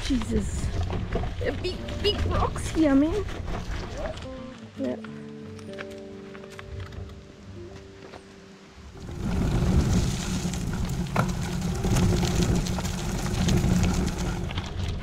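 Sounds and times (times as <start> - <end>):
bicycle tyres rolling over dirt: 0.0 - 4.6, 8.8 - 15.0.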